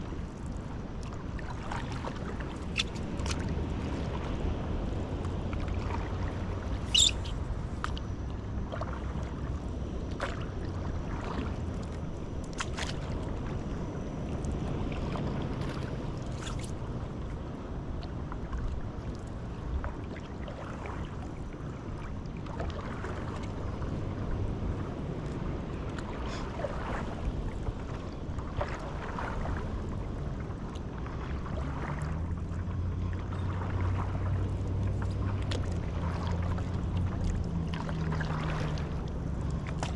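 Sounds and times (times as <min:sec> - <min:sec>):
steady low rumble: 0:00.0 - 0:20.0
paddle splashing in water: 0:01.0 - 0:04.2, 0:26.0 - 0:30.0, 0:30.6 - 0:39.9.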